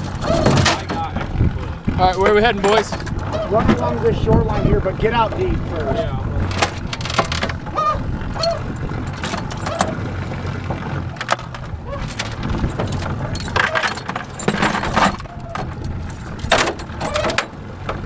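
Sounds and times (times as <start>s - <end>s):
metal chains jangling and clinking: 8.3s - 10.0s, 12.0s - 17.5s.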